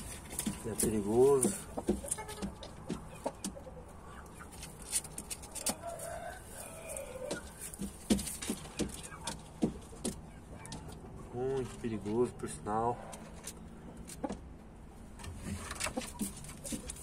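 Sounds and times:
rooster stepping on straw: 0.0 - 3.0, 4.5 - 10.2, 15.2 - 17.0
chickens calling faintly: 0.0 - 17.0.

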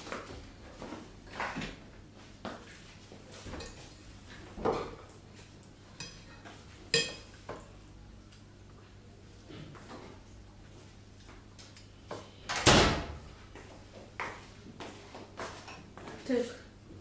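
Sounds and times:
metal fork clinking on plate: 6.9 - 7.3.

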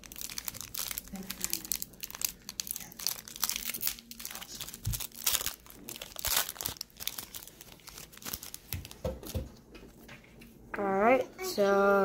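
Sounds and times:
foil wrapper crinkling and tearing: 0.0 - 9.0.

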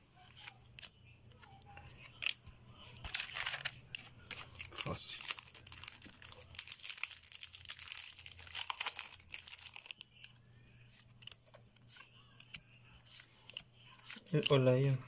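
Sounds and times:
foil wrapper tearing and crinkling: 3.0 - 3.8, 4.6 - 10.0.

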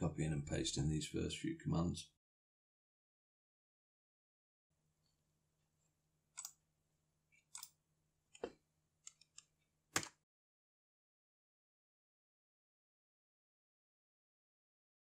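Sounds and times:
mouse and keyboard clicks: 6.4 - 6.6, 7.4 - 10.2.

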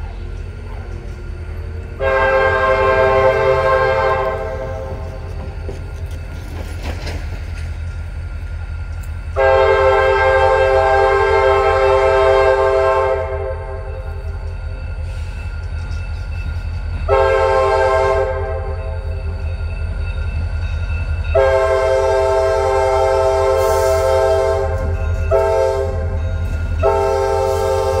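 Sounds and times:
locomotive engine rumble: 0.0 - 28.0
locomotive air horn: 2.0 - 5.0, 9.4 - 13.8, 17.1 - 18.8, 21.3 - 26.2, 26.8 - 28.0.

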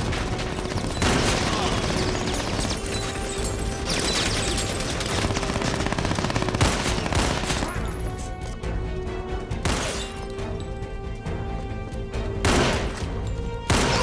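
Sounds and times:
automatic gunfire: 0.2 - 2.9, 4.4 - 7.7.

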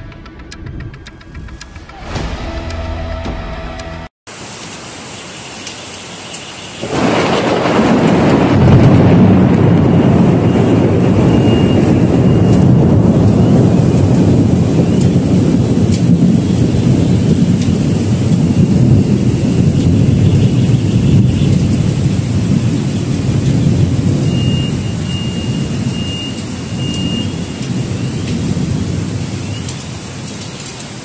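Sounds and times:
heavy rain: 1.8 - 31.0
thunder rumbling: 6.8 - 31.0.

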